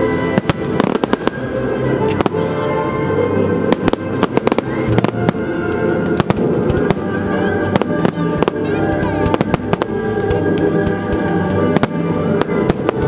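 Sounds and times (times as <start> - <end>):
music: 0.0 - 13.0
fireworks bangs and cracks: 0.3 - 1.5, 3.7 - 13.0.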